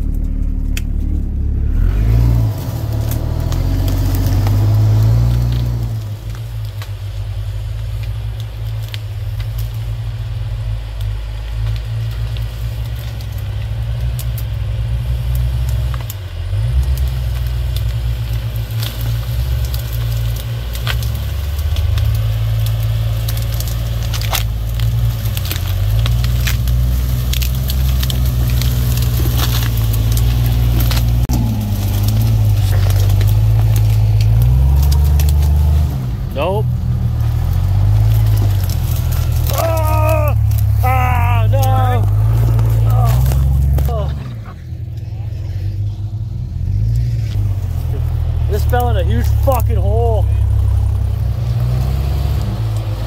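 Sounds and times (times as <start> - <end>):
vehicle engine droning: 0.0 - 53.0.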